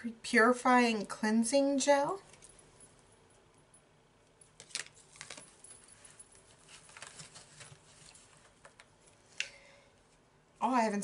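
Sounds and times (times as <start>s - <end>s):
rustling of small packets: 4.6s - 8.9s.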